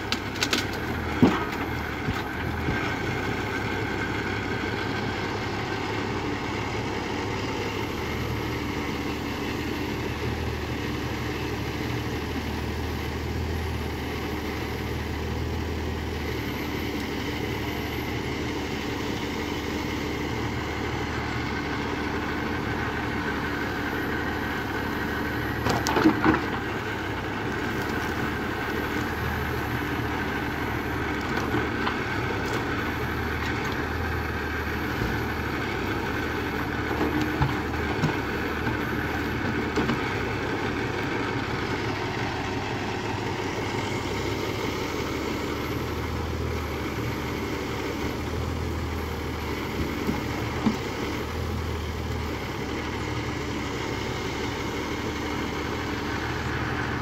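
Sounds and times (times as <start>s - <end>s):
wooden knocks and cracks of logs: 0.0s - 3.0s, 25.6s - 26.7s, 36.9s - 38.8s, 49.7s - 50.9s
tractor diesel engine running: 0.0s - 57.0s.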